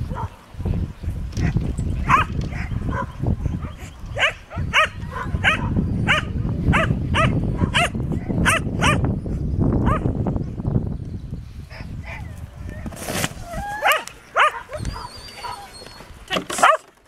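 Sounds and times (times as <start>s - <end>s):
dog barking: 2.1s - 3.2s, 4.2s - 9.0s, 9.9s - 10.1s, 13.8s - 15.7s.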